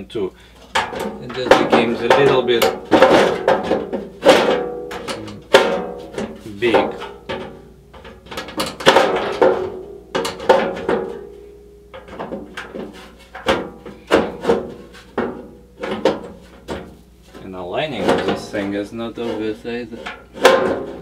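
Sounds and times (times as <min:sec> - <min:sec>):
metal clunks and knocks: 0:00.7 - 0:21.0.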